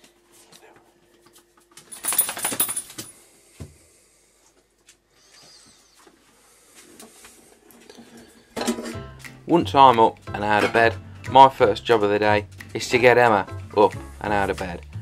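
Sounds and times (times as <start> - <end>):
jangling clattering rattle: 1.9 - 3.1.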